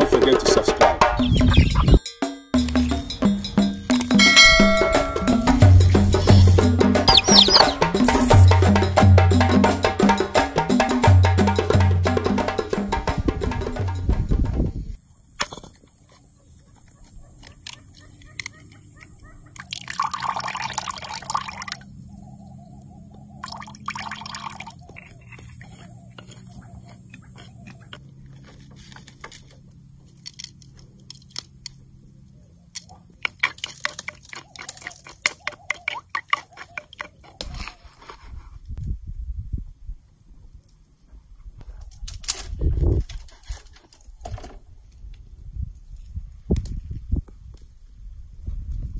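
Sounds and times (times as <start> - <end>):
spoon stirring watery mixture: 33.2 - 37.3.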